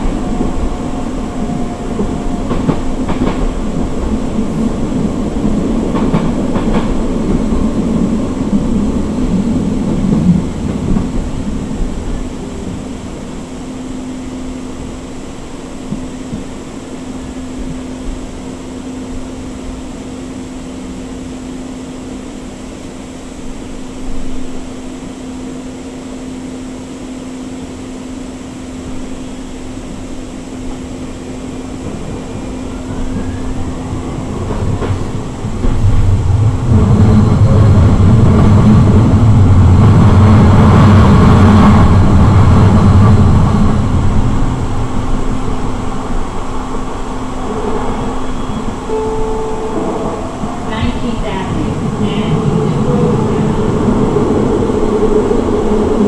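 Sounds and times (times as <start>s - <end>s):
passing train rumble: 0.0s - 56.0s
train running noise with hum: 0.0s - 56.0s.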